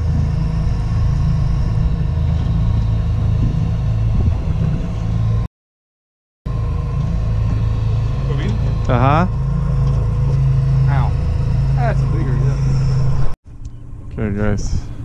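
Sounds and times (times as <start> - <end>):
outboard motor running: 0.0 - 5.5, 6.5 - 15.0
water noise: 0.0 - 5.5
wind: 0.0 - 5.5, 6.5 - 15.0.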